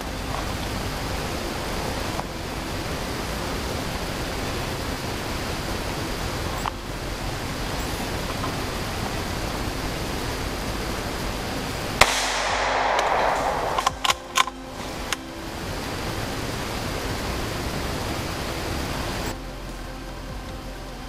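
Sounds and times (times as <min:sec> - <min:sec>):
steady hiss: 0:00.0 - 0:21.0
rifle shot: 0:12.0 - 0:14.6.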